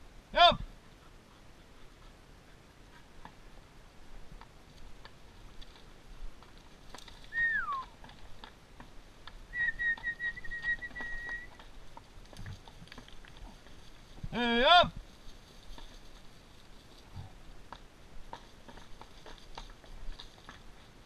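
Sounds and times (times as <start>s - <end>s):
horse hooves on stony ground: 0.6s - 21.0s
man whistling: 7.3s - 7.9s, 9.5s - 11.5s.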